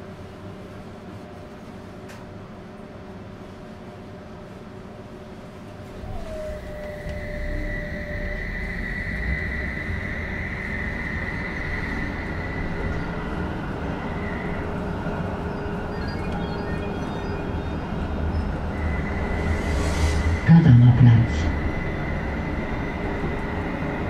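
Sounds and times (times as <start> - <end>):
tram wheels rumbling on rail: 4.8 - 24.0
high inverter whine: 5.4 - 24.0
short higher tones: 5.8 - 10.3.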